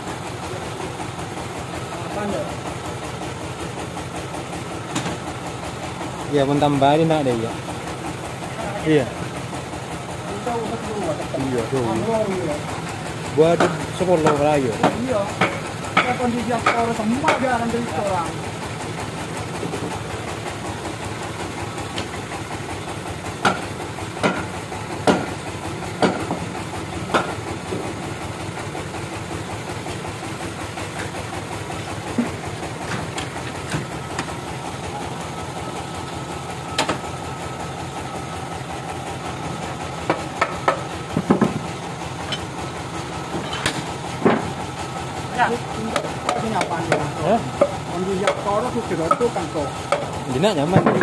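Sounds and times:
sawmill machinery running: 0.0 - 51.0
sharp knocks: 23.4 - 25.4, 26.0 - 26.4, 40.1 - 41.7, 50.7 - 51.0.

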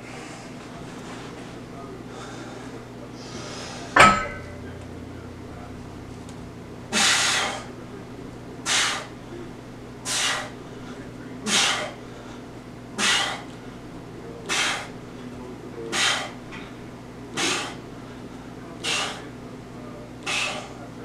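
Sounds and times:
barbell clank: 4.0 - 4.8
man exhaling forcefully: 6.9 - 7.7, 20.3 - 20.8.

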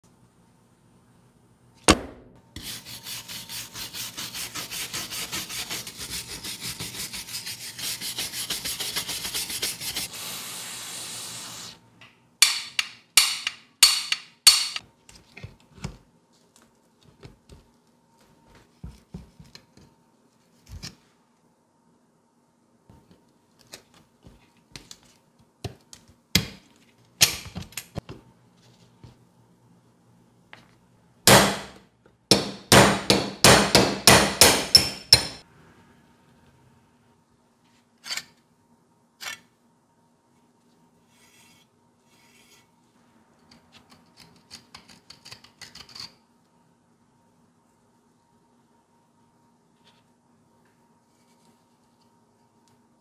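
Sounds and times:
scraping strokes: 2.6 - 11.8.

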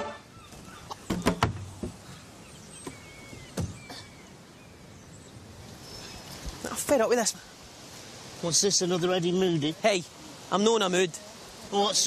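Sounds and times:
short knocks and thumps: 1.0 - 2.0, 2.8 - 4.0.

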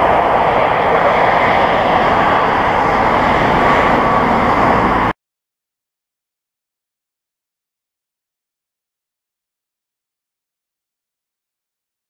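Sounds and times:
jet engines at take-off: 0.0 - 5.2.

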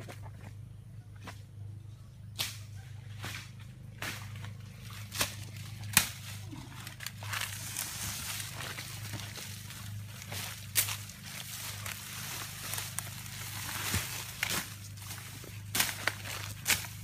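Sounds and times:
dry leaves rustling: 2.8 - 17.0
twigs snapping: 5.0 - 17.0.

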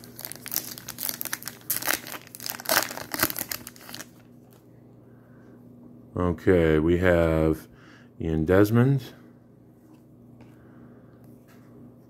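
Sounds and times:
foil wrapper tearing and crinkling: 0.0 - 4.3.

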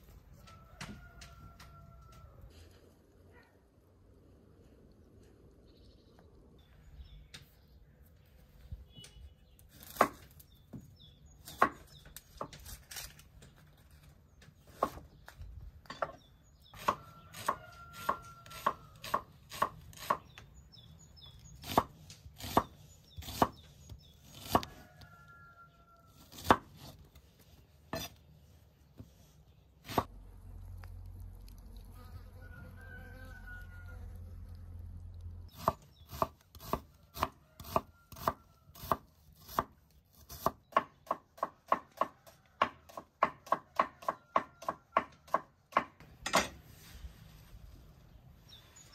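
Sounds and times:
knife chopping on wooden board: 21.6 - 23.6, 26.3 - 27.0, 27.9 - 28.1, 35.5 - 46.0.

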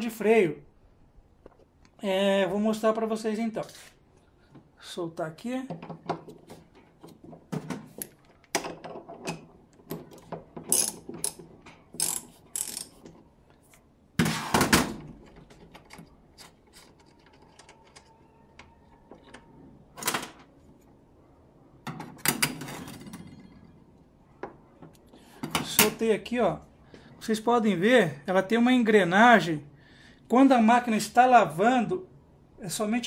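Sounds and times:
socket wrench clicking on nut: 12.0 - 12.9
metal clunks and scrapes: 14.2 - 17.6.

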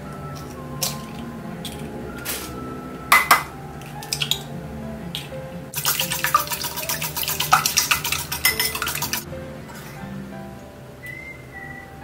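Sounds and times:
egg cracking on bowl rim: 3.2 - 4.5
whisk beating eggs in bowl: 5.8 - 9.3.

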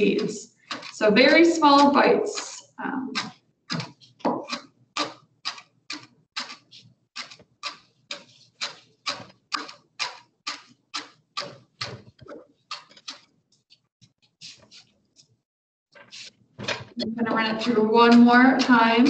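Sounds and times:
knife chopping on cutting board: 3.2 - 5.6.

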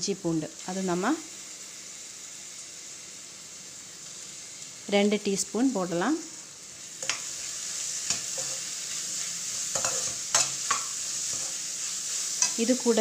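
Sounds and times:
onions sizzling in hot oil: 0.0 - 13.0
metal spoon scraping pan: 7.0 - 12.7.

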